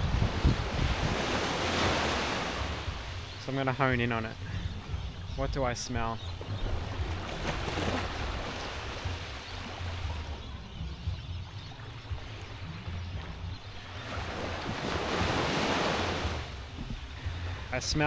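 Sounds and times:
wind rumble on microphone: 0:00.0 - 0:03.4, 0:04.4 - 0:18.0
small waves washing on sand: 0:00.0 - 0:05.1, 0:06.0 - 0:10.5, 0:13.8 - 0:18.0.

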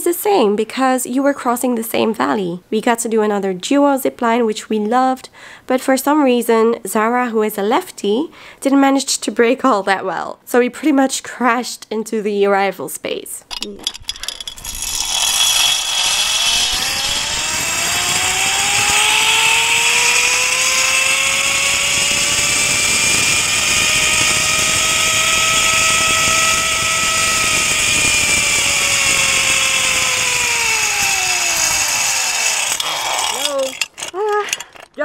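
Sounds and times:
zipline pulley whining on cable: 0:13.5 - 0:34.6.

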